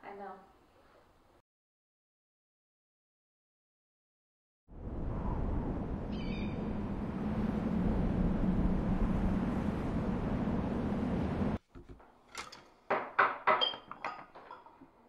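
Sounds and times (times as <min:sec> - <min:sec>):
rushing noise with low hum: 0:04.7 - 0:11.6.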